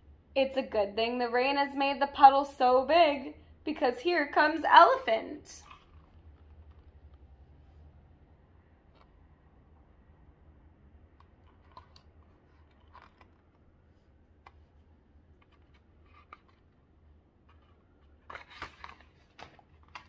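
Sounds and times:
soft handling noise of book: 0:05.6 - 0:08.0, 0:11.1 - 0:20.0
page turning: 0:11.6 - 0:14.7, 0:15.4 - 0:16.8, 0:17.4 - 0:20.0.

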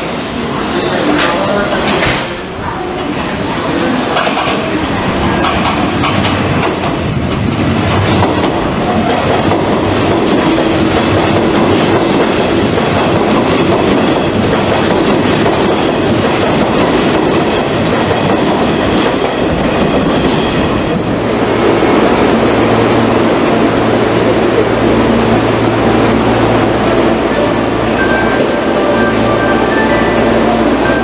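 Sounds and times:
electric train passing: 0:00.0 - 0:31.0.

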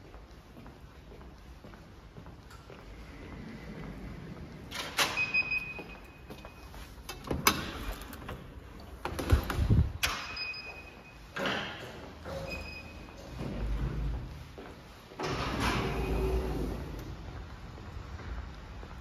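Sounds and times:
door squeal: 0:15.2 - 0:16.8.

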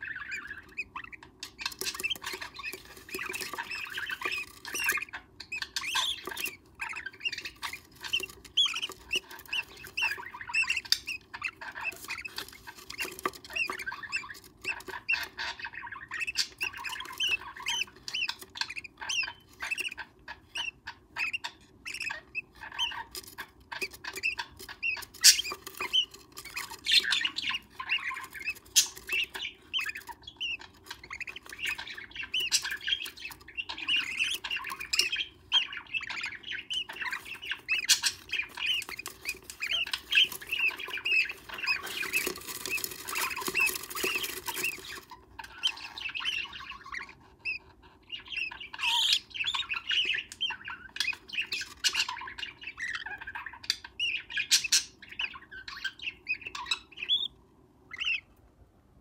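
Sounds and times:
bird chicks squawking: 0:00.0 - 0:58.4
rustling and scuffling: 0:37.1 - 0:45.1.

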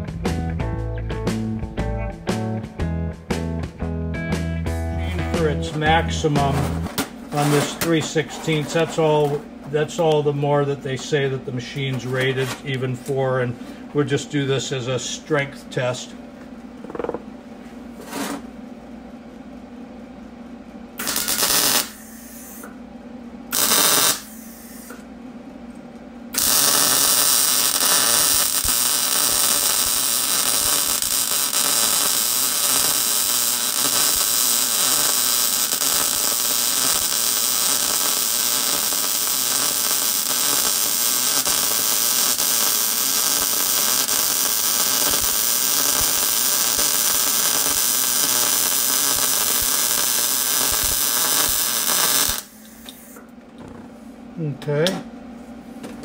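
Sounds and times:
welder arc buzzing: 0:21.0 - 0:22.8, 0:23.5 - 0:25.1, 0:26.3 - 0:53.2.

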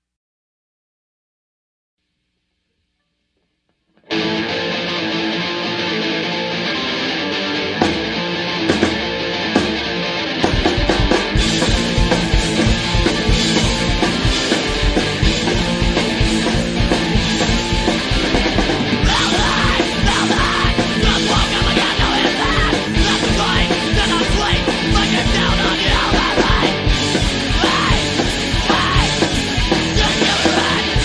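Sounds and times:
distorted electric guitar: 0:02.5 - 0:31.0
drums and bass: 0:07.7 - 0:31.0
shouted vocals: 0:19.0 - 0:31.0.

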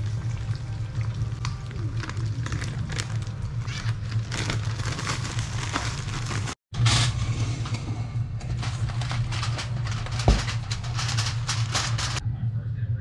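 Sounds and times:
plastic bag crinkling: 0:01.7 - 0:06.6, 0:08.6 - 0:12.2
steady low hum: 0:06.8 - 0:13.0.

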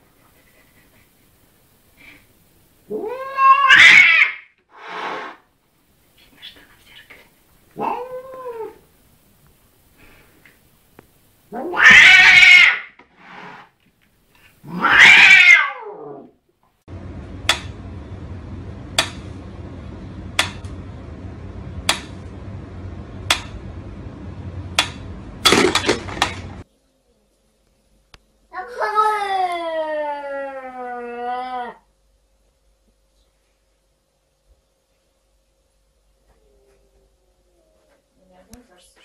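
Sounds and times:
cat meowing and yowling: 0:02.9 - 0:04.4, 0:07.8 - 0:08.8, 0:11.6 - 0:12.9, 0:14.7 - 0:16.2
steady low hum: 0:16.8 - 0:28.5.

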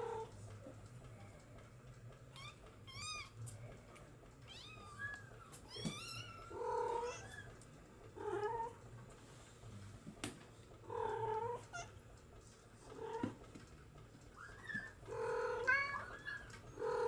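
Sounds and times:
kittens mewing: 0:04.5 - 0:07.6.

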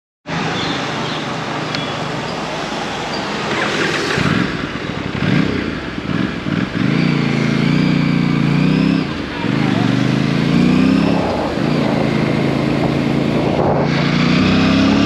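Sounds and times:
motorcycle engine idling and revving: 0:00.3 - 0:15.0
motorcycle pulling away: 0:03.2 - 0:15.0.

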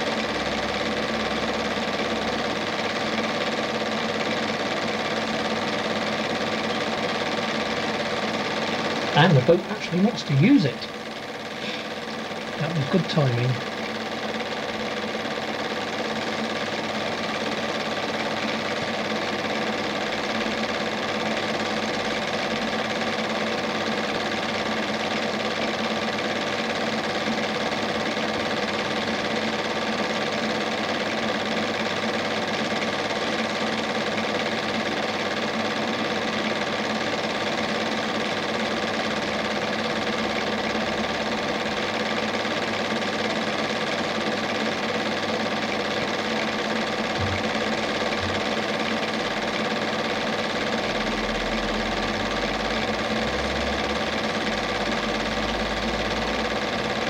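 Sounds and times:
film projector whirring: 0:00.0 - 0:57.0
steady hum: 0:07.4 - 0:16.4, 0:45.8 - 0:49.7.

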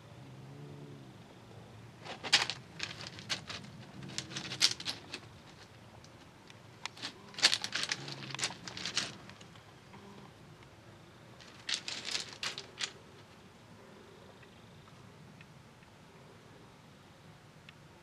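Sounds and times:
footsteps on gravel: 0:02.0 - 0:05.8, 0:06.9 - 0:09.4, 0:11.4 - 0:13.0.

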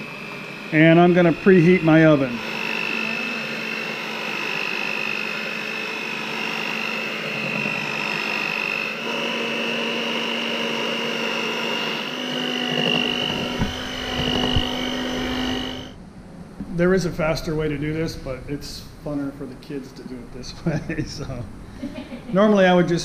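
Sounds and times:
electric hand mixer whirring: 0:00.0 - 0:16.0
knocks: 0:12.8 - 0:15.4.

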